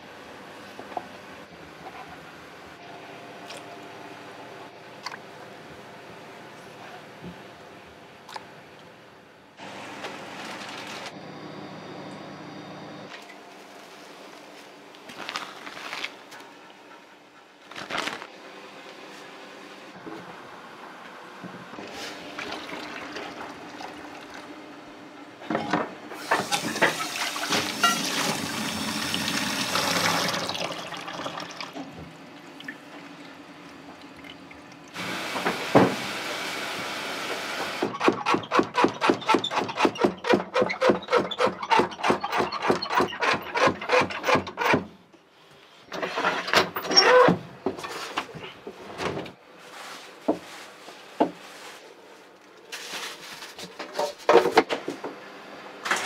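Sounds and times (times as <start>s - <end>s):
water running from a tap: 27.0s - 31.8s.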